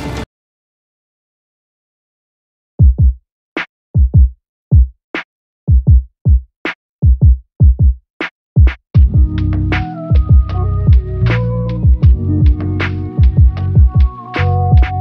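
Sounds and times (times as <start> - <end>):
deep kick drums: 2.8 - 3.2, 4.0 - 4.9, 5.7 - 8.0, 8.6 - 11.2, 11.8 - 15.0.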